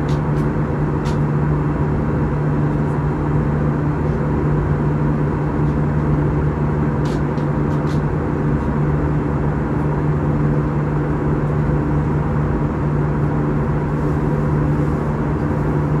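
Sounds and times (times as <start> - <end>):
jet engine drone in cabin: 0.0 - 16.0.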